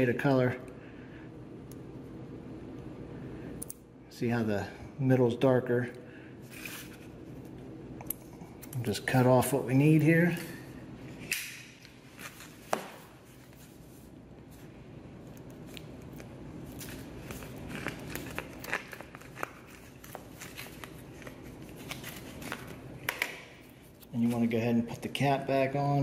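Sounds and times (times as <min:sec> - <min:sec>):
plastic wrapper crinkling: 0:15.6 - 0:23.0.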